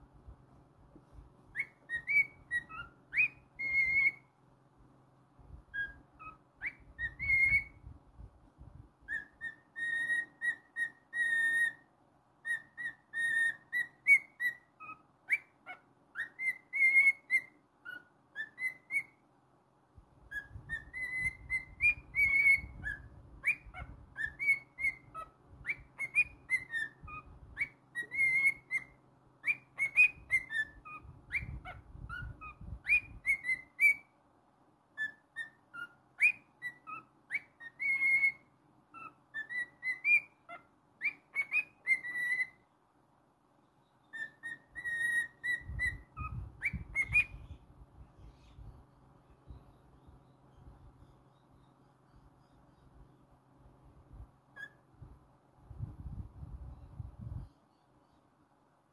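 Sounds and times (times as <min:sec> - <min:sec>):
bird whistling a tune: 0:01.5 - 0:04.4, 0:05.6 - 0:08.0, 0:09.0 - 0:19.2, 0:20.2 - 0:34.2, 0:34.9 - 0:42.6, 0:44.0 - 0:47.6, 0:54.5 - 0:54.9.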